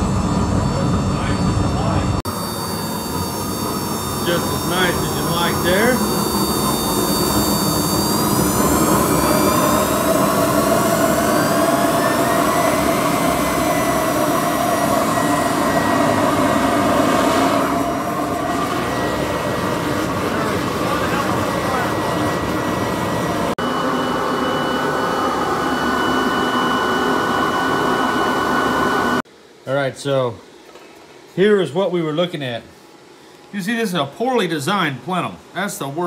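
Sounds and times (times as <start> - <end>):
gas burner rushing: 0.0 - 29.2
blower motor whine: 0.0 - 29.6.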